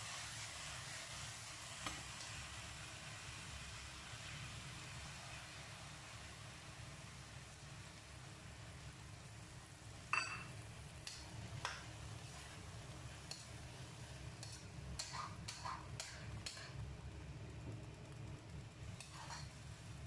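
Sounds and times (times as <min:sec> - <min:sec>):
low steady hum: 0:07.2 - 0:20.0
metal spatula scraping a wok: 0:19.0 - 0:19.6.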